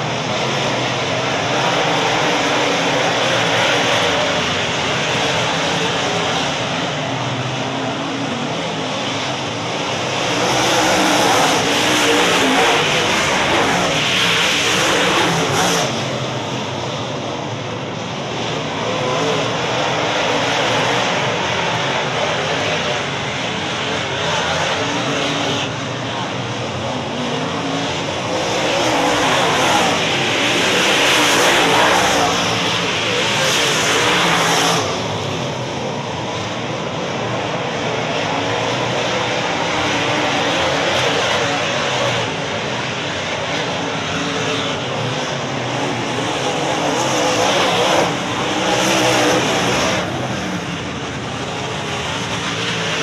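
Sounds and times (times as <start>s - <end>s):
race car engines: 0.0s - 53.0s.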